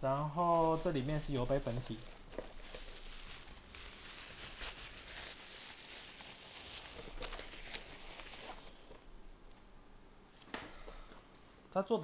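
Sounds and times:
packaging rustling: 0.0s - 9.1s
sharp packaging crackles: 0.2s - 9.0s.

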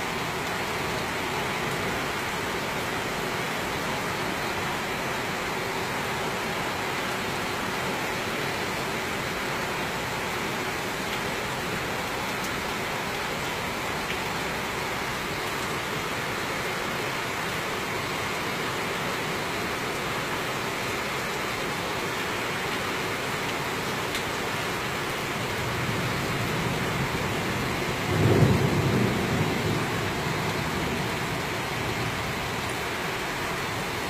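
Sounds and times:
heavy rain falling: 0.0s - 34.0s.

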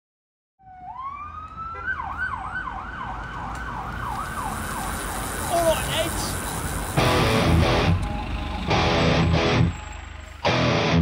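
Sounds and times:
emergency siren wailing and yelping: 0.6s - 10.4s.

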